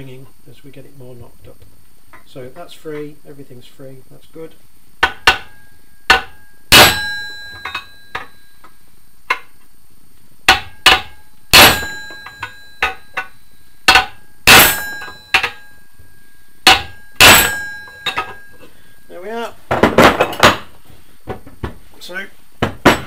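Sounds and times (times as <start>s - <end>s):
hammer blows on metal ringing: 5.0s - 9.5s, 10.5s - 19.2s.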